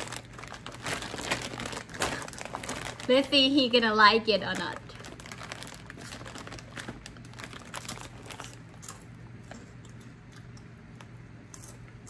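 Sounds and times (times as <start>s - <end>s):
low steady hum: 0.0s - 12.0s
crunchy snack chewing: 5.0s - 12.0s.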